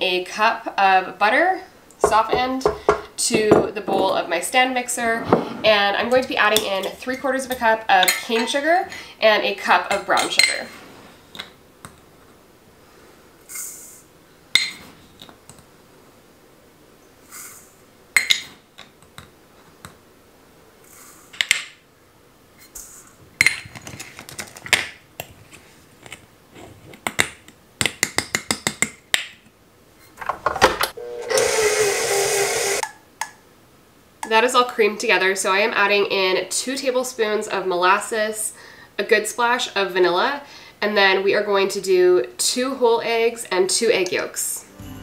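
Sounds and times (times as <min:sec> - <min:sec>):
stand mixer running: 0:31.0 - 0:32.8.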